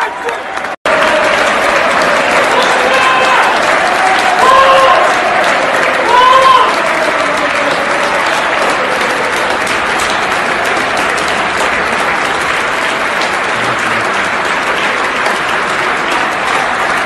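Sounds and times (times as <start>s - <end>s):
stadium crowd clapping: 0.0s - 17.0s.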